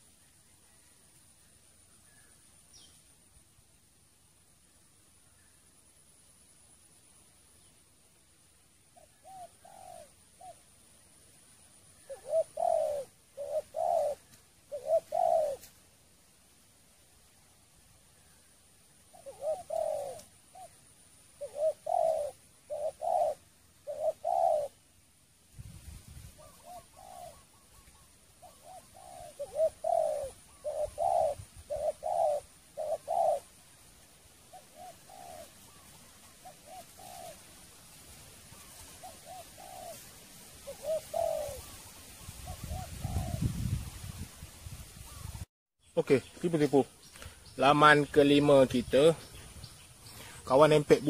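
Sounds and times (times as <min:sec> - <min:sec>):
dove cooing: 0:09.0 - 0:10.8, 0:11.6 - 0:15.8, 0:18.2 - 0:24.8, 0:26.4 - 0:37.8, 0:38.5 - 0:43.8.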